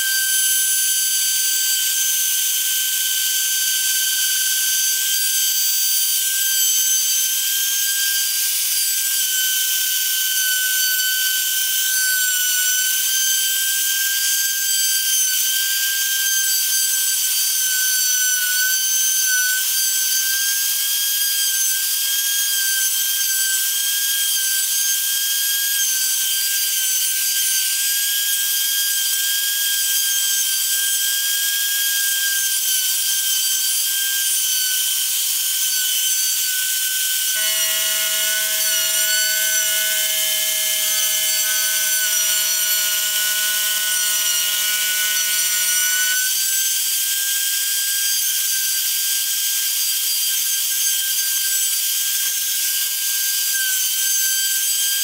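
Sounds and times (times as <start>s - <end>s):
router spindle whine: 0.0s - 55.0s
bit cutting wood hiss: 29.3s - 48.1s.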